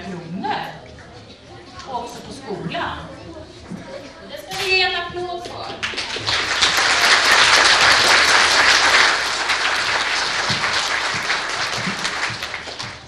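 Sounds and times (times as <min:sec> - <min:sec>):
audience applauding: 0:05.8 - 0:13.0.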